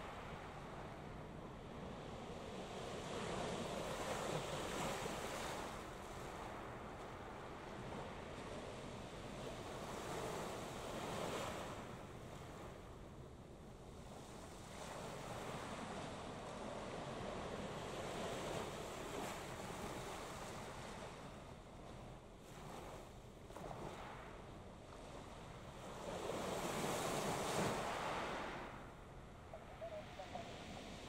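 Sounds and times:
waves washing at shore: 14.2 - 31.0.

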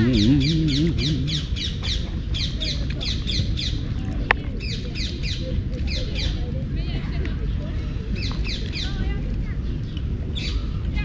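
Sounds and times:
man humming: 0.0 - 1.6.

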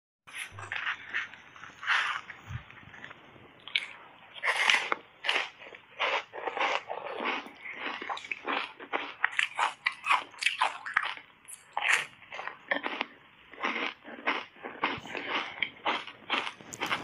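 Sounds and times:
ice bar crunching as chewed: 3.0 - 17.0.

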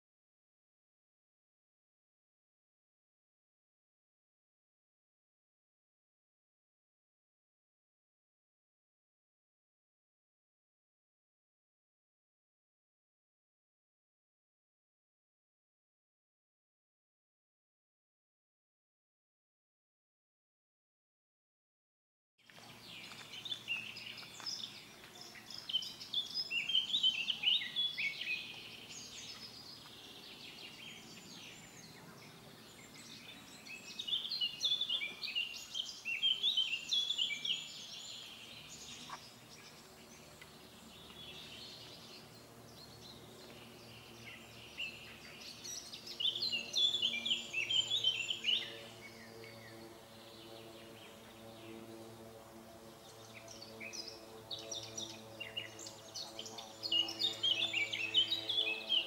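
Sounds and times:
songbird chirping: 22.5 - 59.0.

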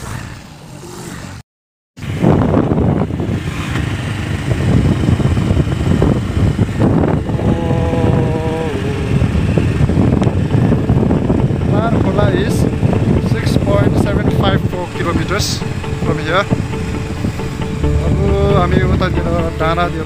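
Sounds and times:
motorcycle engine running: 2.0 - 20.0
wind rushing over microphone: 2.0 - 20.0
steady tone dipping in pitch: 7.3 - 10.3, 10.9 - 20.0.

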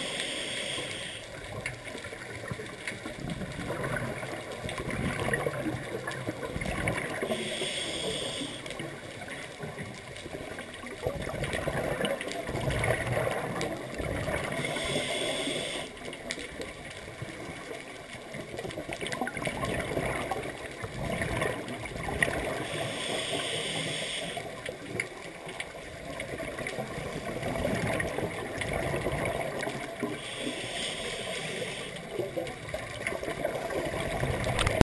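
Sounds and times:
diver breathing through regulator: 0.0 - 1.3, 7.2 - 8.8, 14.5 - 16.0, 22.5 - 24.5, 30.1 - 32.2
bubbling exhale: 12.8 - 16.0.

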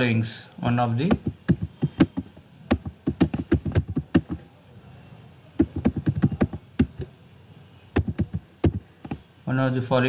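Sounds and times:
typing on computer keyboard: 1.1 - 4.4, 5.6 - 7.1, 8.0 - 9.2.

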